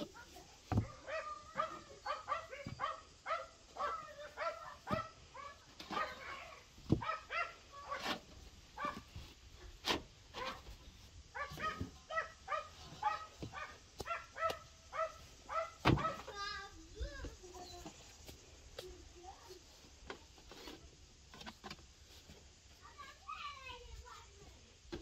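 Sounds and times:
dog yapping: 0:00.7 - 0:08.2, 0:08.8 - 0:09.0, 0:11.4 - 0:16.3.

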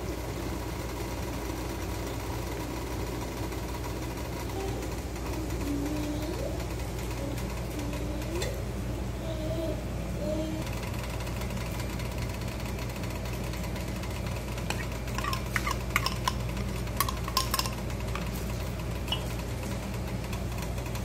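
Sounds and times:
steady low hum: 0:00.0 - 0:21.0
metal spoon clinking on plate: 0:17.0 - 0:17.8.

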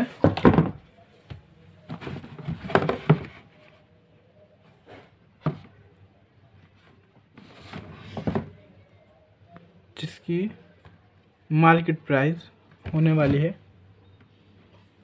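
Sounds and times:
knocks and rustles: 0:00.1 - 0:00.9, 0:01.8 - 0:03.6.

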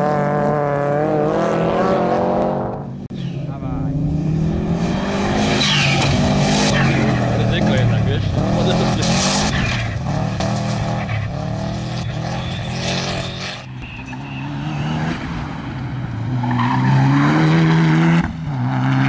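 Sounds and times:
rally car engines revving: 0:00.0 - 0:19.0
tyres on loose dirt: 0:05.2 - 0:17.3.

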